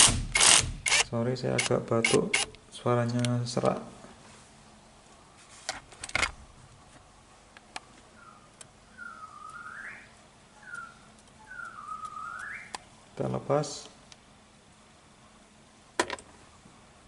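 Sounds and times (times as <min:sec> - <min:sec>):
person whistling: 0:09.0 - 0:10.0, 0:10.6 - 0:12.7.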